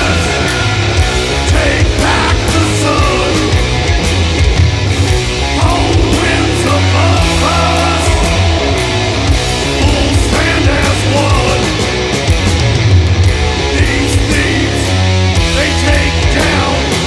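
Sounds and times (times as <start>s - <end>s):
heavy metal band playing: 0.0s - 17.0s.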